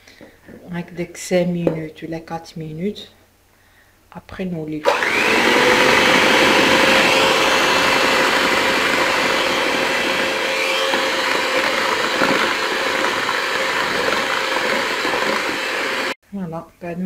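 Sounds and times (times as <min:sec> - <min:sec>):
electric hand mixer whining: 0:04.8 - 0:16.2.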